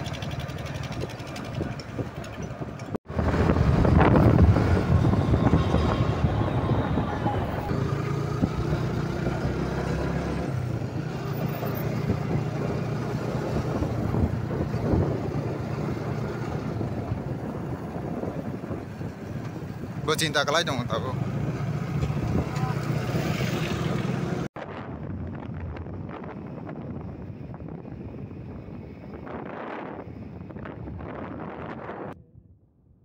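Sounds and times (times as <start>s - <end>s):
motorcycle engine humming: 0.0s - 20.0s
wind rushing over microphone: 0.0s - 33.0s.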